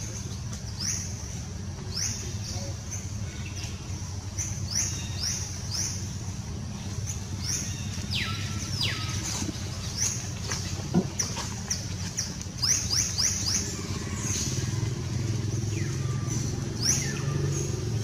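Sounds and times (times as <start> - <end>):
birds chirping: 0.0 - 18.0
steady low hum: 0.0 - 18.0.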